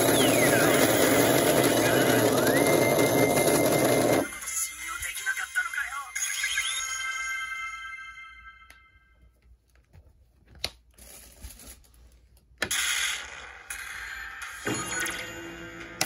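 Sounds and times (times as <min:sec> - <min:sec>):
ringing electronic chime: 0:02.1 - 0:09.2.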